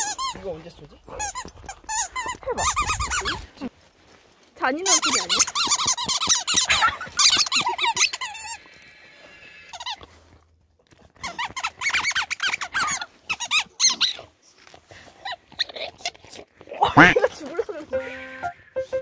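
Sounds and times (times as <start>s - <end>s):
rubber squeaky toy squeaking: 0.0s - 0.5s, 1.1s - 3.5s, 4.8s - 8.6s, 9.7s - 10.0s, 11.2s - 14.2s.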